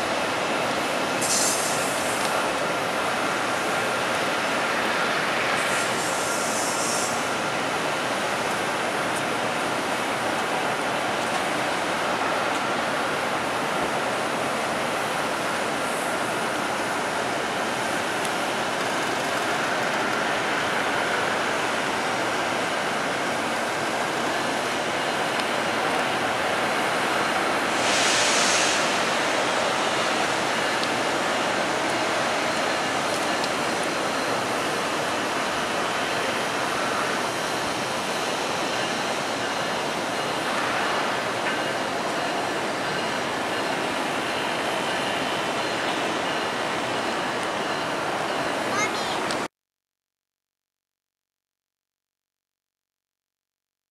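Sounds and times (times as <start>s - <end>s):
train rumbling: 0.0s - 49.5s
brief hiss: 1.2s - 2.3s, 5.6s - 7.2s, 27.7s - 29.0s.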